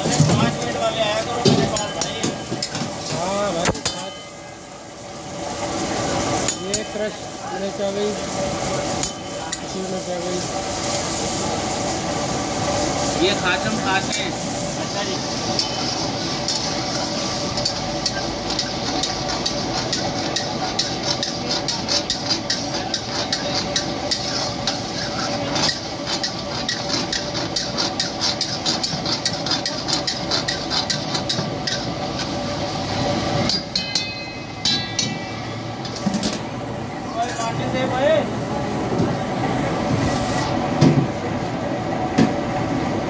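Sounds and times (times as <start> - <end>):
food sizzling: 0.0 - 41.6
metal spatula clanking in wok: 33.5 - 36.4
ringing metallic clinks: 33.7 - 35.5.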